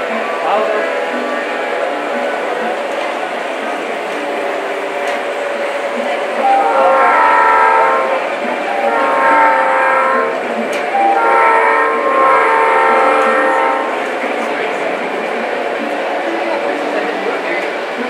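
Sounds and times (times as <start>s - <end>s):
steady background noise: 0.0s - 18.0s
model train horn blasts: 6.4s - 14.1s.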